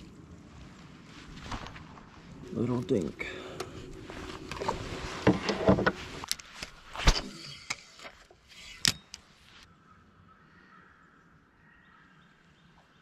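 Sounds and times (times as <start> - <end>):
knocks and clicks on boat deck: 4.5 - 6.0.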